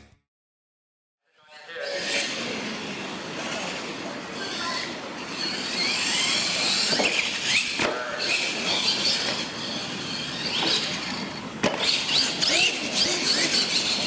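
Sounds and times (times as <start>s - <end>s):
toy truck electric motor whining: 2.0s - 14.0s
sharp knocks on ramps: 11.6s - 12.0s.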